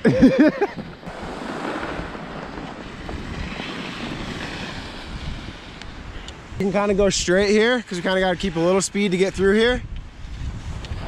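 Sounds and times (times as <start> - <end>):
wind on microphone: 0.6 - 11.0
skis hissing over snow: 1.1 - 6.4.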